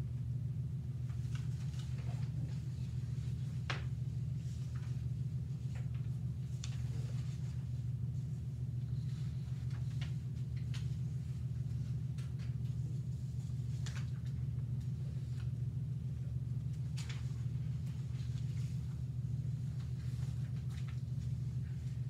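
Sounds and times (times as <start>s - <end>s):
low room hum: 0.0s - 22.0s.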